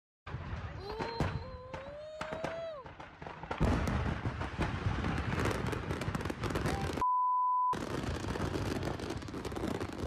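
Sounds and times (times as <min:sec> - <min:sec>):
fireworks crackling and popping: 0:00.3 - 0:07.0, 0:07.8 - 0:10.0
censor bleep: 0:07.0 - 0:07.8.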